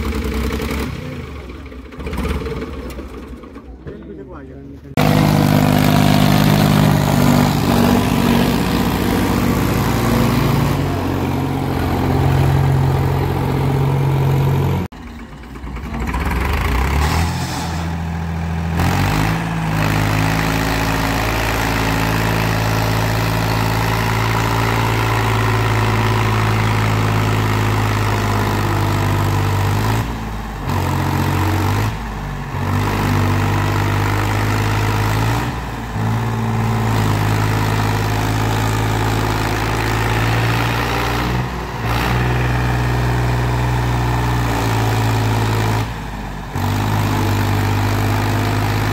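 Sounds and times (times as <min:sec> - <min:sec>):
diesel tractor engine under load: 0:00.0 - 0:48.9.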